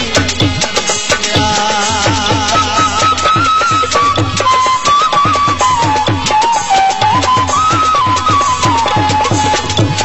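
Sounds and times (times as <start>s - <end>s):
fast drum rhythm: 0.0s - 10.0s
folk melody line: 0.0s - 10.0s.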